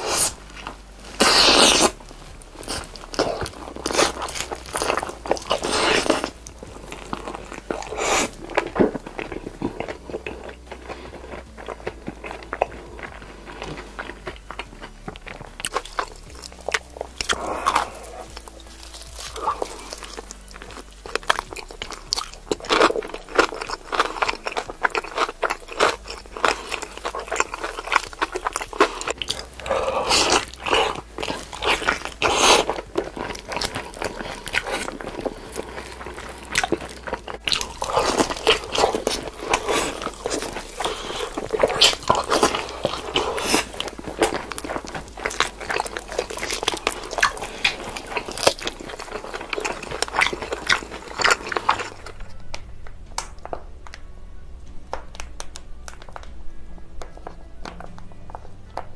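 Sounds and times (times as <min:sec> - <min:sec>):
crunchy chewing: 0:00.0 - 0:53.6.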